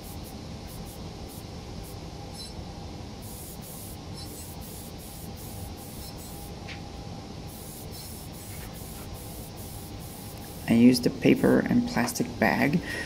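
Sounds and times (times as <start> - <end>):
aerosol spray can hissing: 3.2 - 6.5, 7.5 - 10.8.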